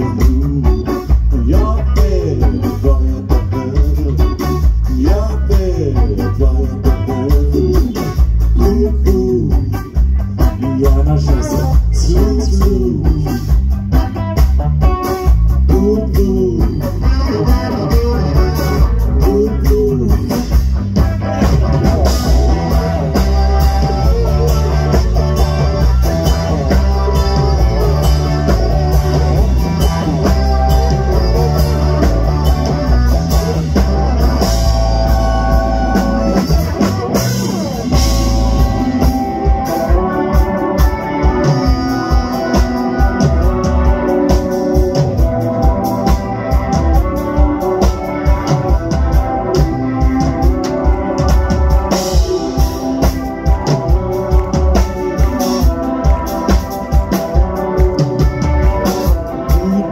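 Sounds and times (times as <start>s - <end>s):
person singing: 0.0s - 13.6s, 15.6s - 20.6s, 22.0s - 45.8s, 57.3s - 59.9s
bass guitar: 0.0s - 59.9s
drums: 0.0s - 59.9s
electric guitar: 0.0s - 59.9s.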